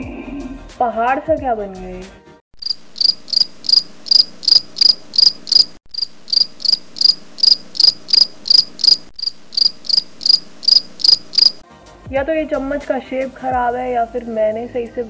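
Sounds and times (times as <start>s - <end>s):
cricket chirping: 2.6s - 11.6s.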